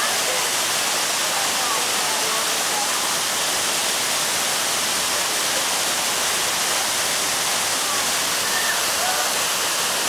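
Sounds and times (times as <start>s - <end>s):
waterfall rushing: 0.0s - 10.0s.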